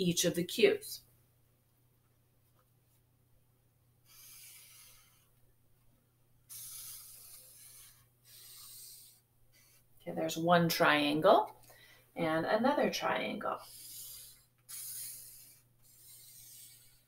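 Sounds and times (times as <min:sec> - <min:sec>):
marker pen on paper: 0:04.1 - 0:05.3, 0:06.5 - 0:09.8, 0:13.4 - 0:17.0.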